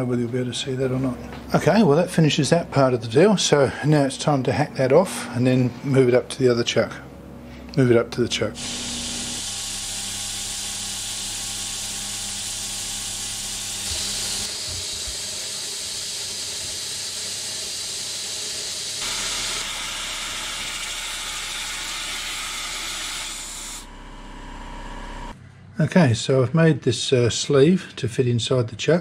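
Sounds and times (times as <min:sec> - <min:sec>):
bandsaw cutting steel tube: 0:08.6 - 0:23.9
compressed air coolant hiss: 0:08.6 - 0:23.9
low motor hum: 0:19.0 - 0:25.4.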